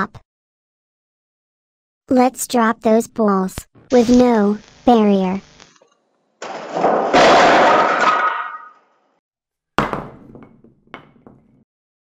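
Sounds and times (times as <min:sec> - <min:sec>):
balls landing thunk: 0:09.8 - 0:11.6.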